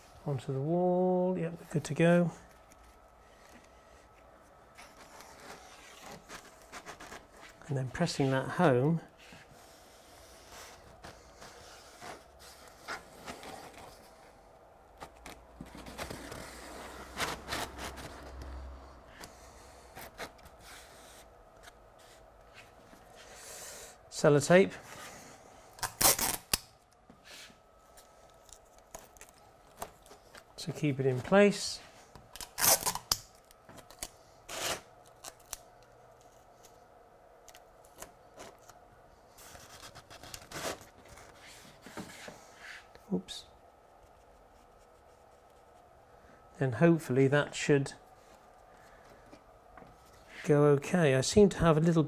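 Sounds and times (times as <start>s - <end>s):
sticky tape tearing: 25.8s - 26.8s, 32.4s - 35.7s.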